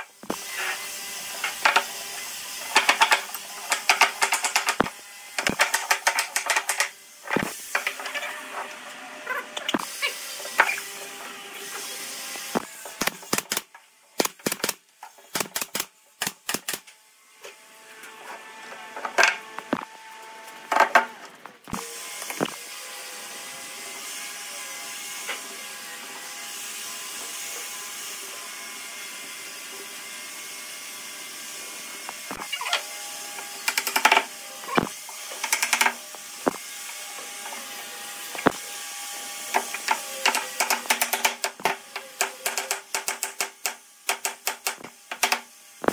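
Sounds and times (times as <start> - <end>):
mechanical hum with held tones: 16.4 - 26.4.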